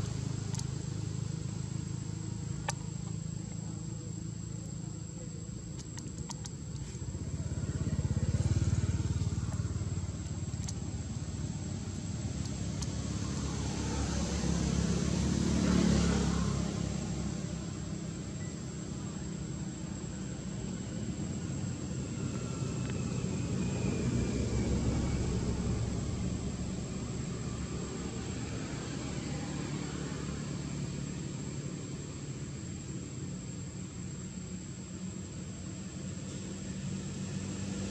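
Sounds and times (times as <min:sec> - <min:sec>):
distant engine drone: 0:00.0 - 0:37.9
motorcycle engine running: 0:05.6 - 0:18.0.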